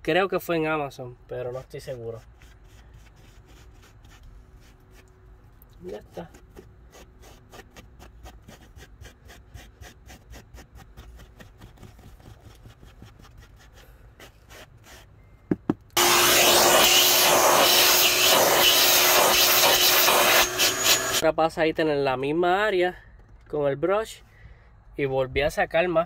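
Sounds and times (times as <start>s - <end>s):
vacuum cleaner running: 16.0s - 21.2s.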